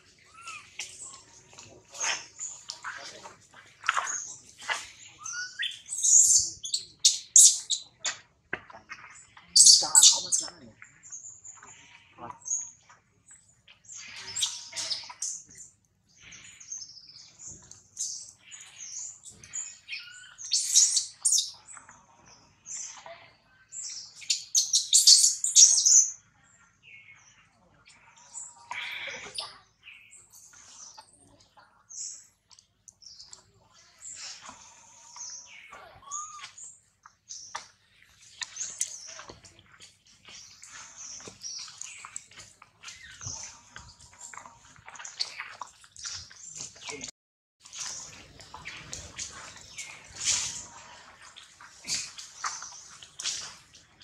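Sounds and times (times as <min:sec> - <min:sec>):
animal chirps and squeals: 0:00.1 - 0:03.2, 0:03.9 - 0:10.6, 0:13.9 - 0:15.7, 0:18.0 - 0:21.6, 0:22.7 - 0:26.2, 0:27.9 - 0:29.7, 0:33.2 - 0:36.7, 0:47.8 - 0:50.9.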